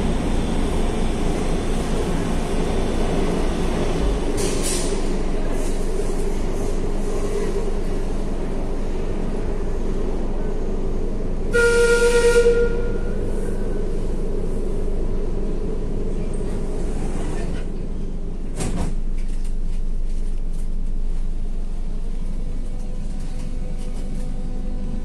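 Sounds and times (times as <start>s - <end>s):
train rumble heard on board: 0.0s - 25.0s
train whistle blast: 11.5s - 13.2s.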